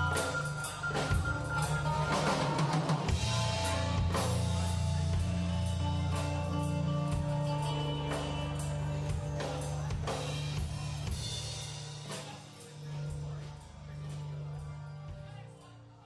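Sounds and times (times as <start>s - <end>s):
keyboard notes: 0.0s - 11.9s
sustained bass notes: 0.0s - 12.1s
drum kit hits and cymbals: 0.0s - 14.3s.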